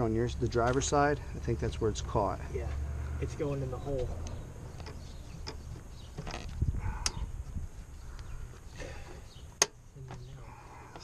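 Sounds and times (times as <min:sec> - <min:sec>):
clicks of engine parts handled: 0:04.2 - 0:07.2, 0:09.6 - 0:10.3.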